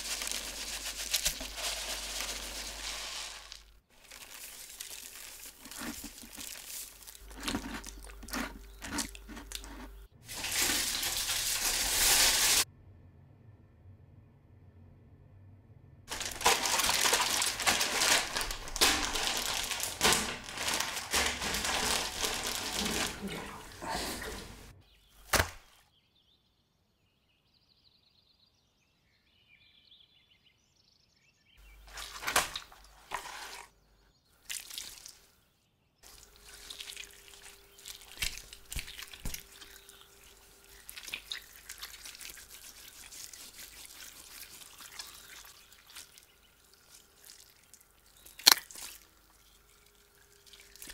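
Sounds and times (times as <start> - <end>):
wet plastic bags crinkling: 0.0 - 12.7, 16.1 - 25.7, 31.6 - 33.7, 34.4 - 35.3, 36.0 - 50.9
knife scraping and cutting fish: 5.6 - 12.6
water dripping: 34.4 - 35.2, 36.0 - 50.9.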